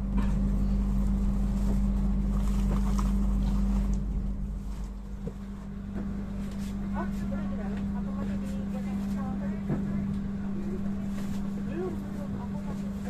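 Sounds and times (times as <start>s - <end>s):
steady hum: 0.0s - 13.0s
train coach rumble: 0.0s - 13.0s.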